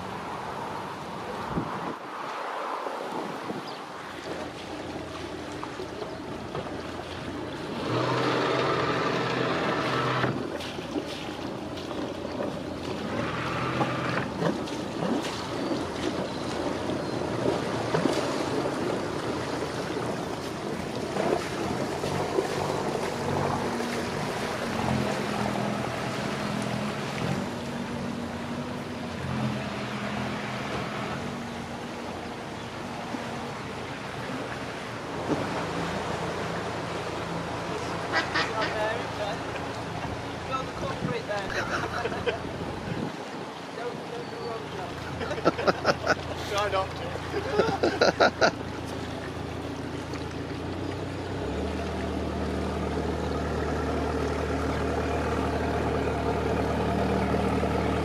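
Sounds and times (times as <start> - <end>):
water washing: 0.0 - 58.0
wind noise on microphone: 1.3 - 2.2, 40.8 - 41.3, 42.4 - 43.5
boat engines running: 3.4 - 58.0.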